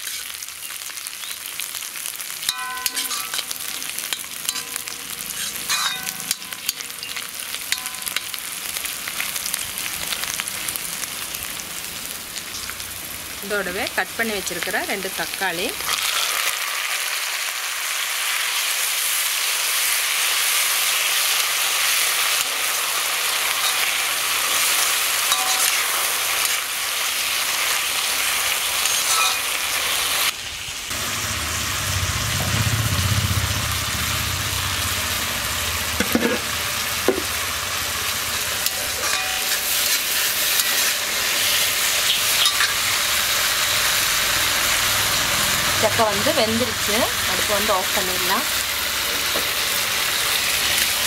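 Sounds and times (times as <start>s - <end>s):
vegetables sizzling in oil: 0.0s - 51.0s
low rumble: 30.9s - 36.0s.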